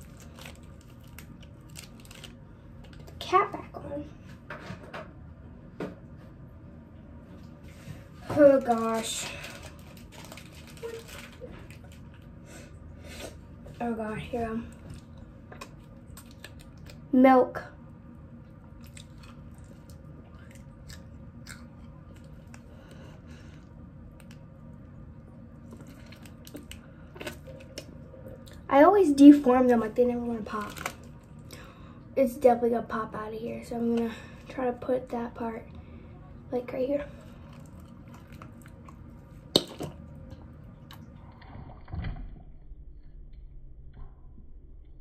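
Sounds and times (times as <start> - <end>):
plastic bag crackling: 0.0 - 3.1, 8.4 - 12.3, 30.4 - 31.3.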